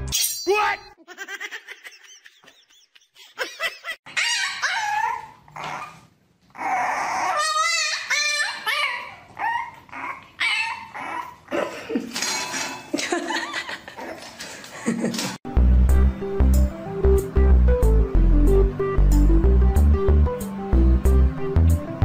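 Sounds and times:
puppy whining and yapping: 0:04.1 - 0:11.5.

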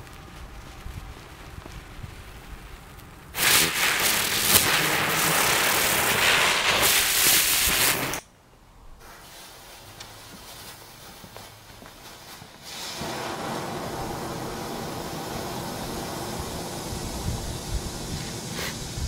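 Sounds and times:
ground spinner fireworks crackling hiss: 0:00.0 - 0:08.3, 0:08.9 - 0:19.0
faint fizz: 0:12.6 - 0:19.0.

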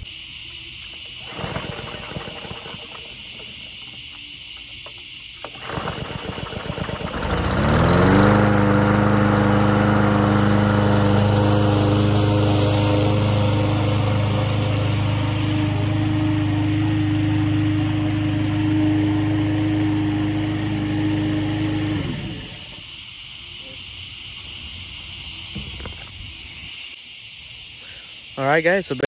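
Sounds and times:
lawn mower engine running: 0:01.0 - 0:04.2, 0:05.4 - 0:23.0.

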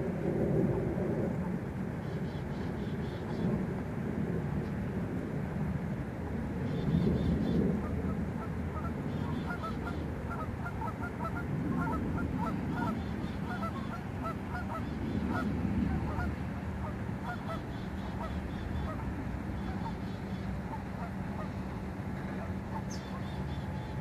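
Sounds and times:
geese honking: 0:06.7 - 0:24.0.

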